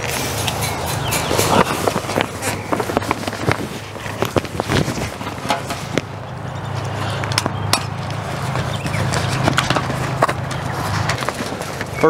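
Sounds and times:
wind rumble on microphone: 0.0s - 11.5s
vinyl fabric rustling and crackling: 1.2s - 6.2s, 8.0s - 12.0s.

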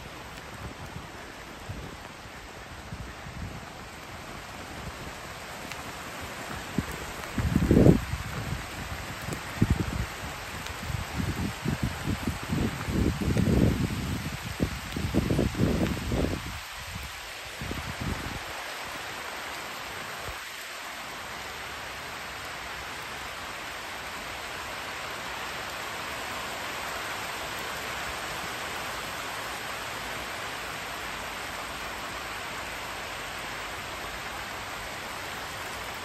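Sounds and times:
rain on foliage and concrete: 0.0s - 36.0s.

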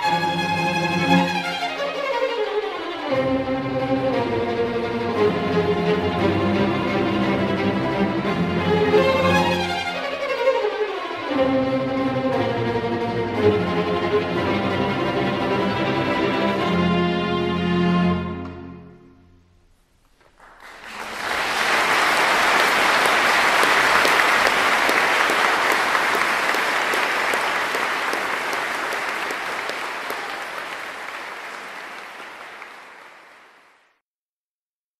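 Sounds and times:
audience applauding: 20.0s - 34.0s.

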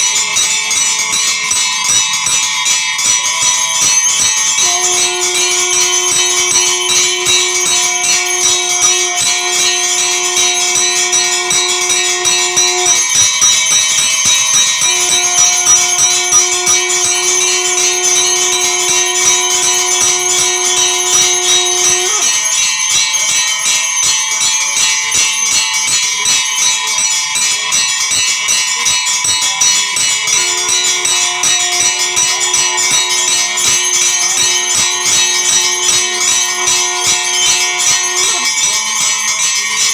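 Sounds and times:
temple bells clanging: 0.0s - 39.9s
long steady low note: 4.2s - 22.5s, 30.2s - 39.2s.

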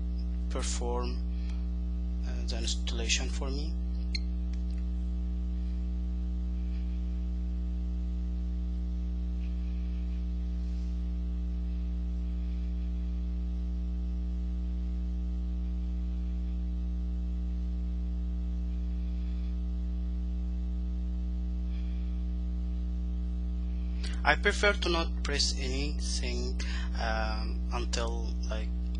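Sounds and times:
electrical mains hum: 0.0s - 28.9s.

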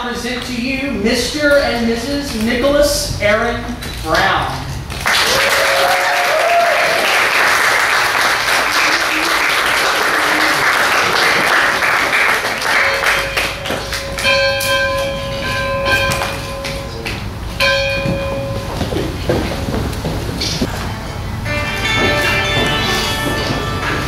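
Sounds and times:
guests applauding: 5.0s - 14.6s
whooping cheer: 5.1s - 7.5s, 8.6s - 11.6s
bell ringing: 12.1s - 19.0s, 20.7s - 24.0s.

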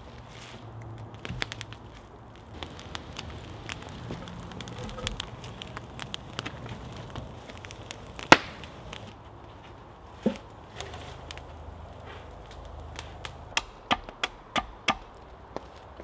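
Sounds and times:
wood fire crackling: 0.0s - 16.0s
loud sharp crack: 7.7s - 9.1s.

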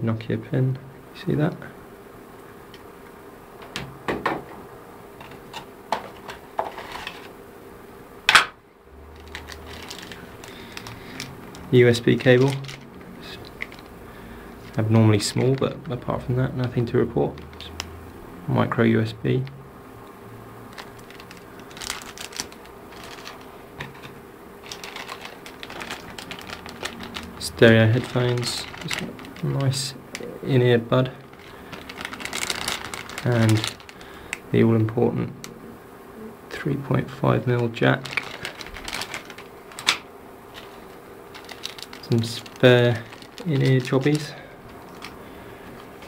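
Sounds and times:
plastic bag crinkling: 9.0s - 18.1s, 20.6s - 35.6s, 36.8s - 46.0s.

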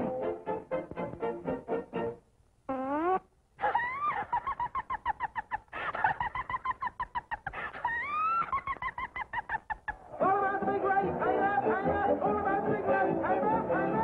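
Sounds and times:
cartoon hen clucking: 2.7s - 10.0s.

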